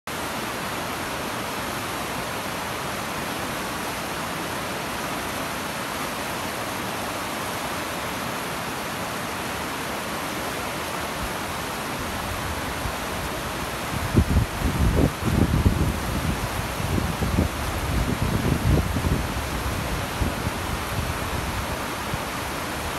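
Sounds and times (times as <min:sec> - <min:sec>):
stream rushing over boulders: 0:00.1 - 0:22.9
wind buffeting microphone: 0:13.9 - 0:22.9.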